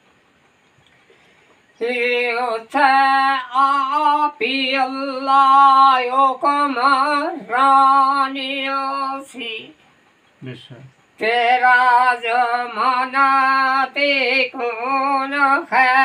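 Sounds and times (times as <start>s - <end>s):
man breathing: 1.0s - 1.6s
elderly man singing unaccompanied: 1.8s - 9.8s, 11.2s - 16.0s.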